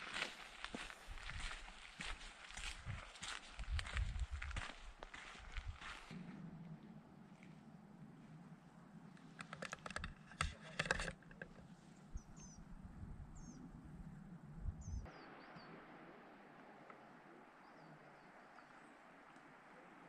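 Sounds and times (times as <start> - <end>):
sharp clicks and crunches: 9.2 - 11.6
small bird chirping: 11.9 - 13.8, 14.6 - 15.7.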